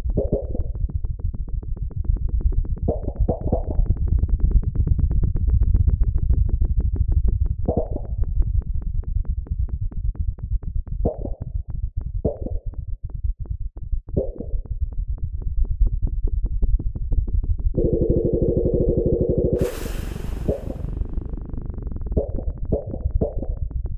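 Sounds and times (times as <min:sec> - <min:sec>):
fast ticking synth pulse: 0:17.8 - 0:21.6
pitched synth swells: 0:17.8 - 0:21.6
sustained higher synth chord: 0:17.8 - 0:21.6
low synth drone: 0:17.8 - 0:23.7.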